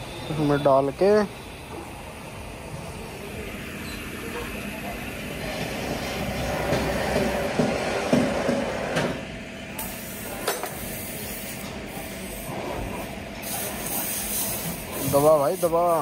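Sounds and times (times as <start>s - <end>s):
traffic noise: 0.0s - 10.8s
workshop noise: 0.0s - 16.0s.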